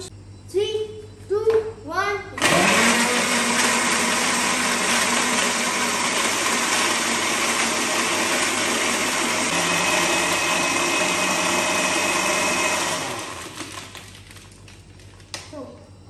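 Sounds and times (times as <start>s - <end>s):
blender running: 2.4s - 14.2s.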